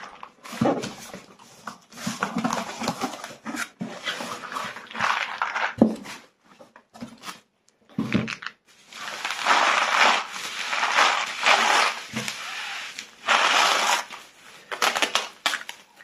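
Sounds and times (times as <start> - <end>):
bubble wrap crackling: 8.7 - 16.0.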